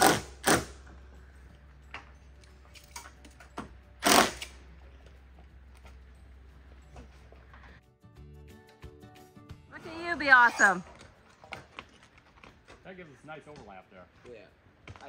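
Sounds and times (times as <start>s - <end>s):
cordless drill driving screws: 4.0s - 4.6s.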